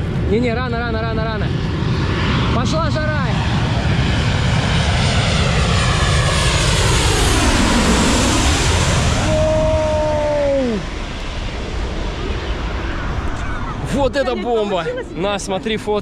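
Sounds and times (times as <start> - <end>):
jet airliner passing overhead: 0.0 - 16.0
jet whine dropping in pitch: 4.3 - 14.2.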